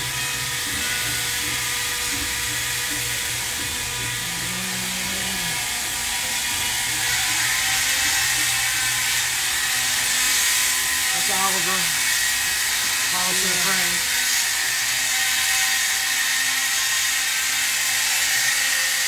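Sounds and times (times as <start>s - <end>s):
machinery low hum: 0.0s - 7.4s.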